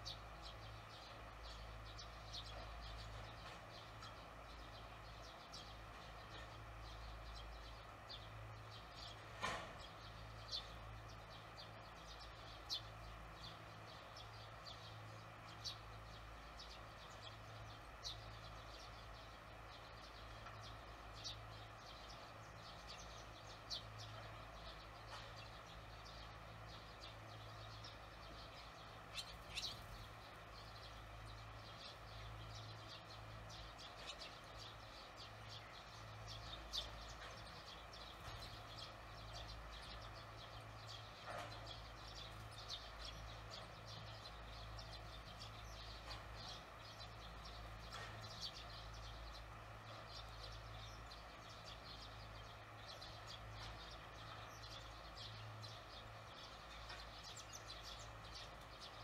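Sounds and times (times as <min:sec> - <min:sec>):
swallows chirping: 0:00.0 - 0:59.0.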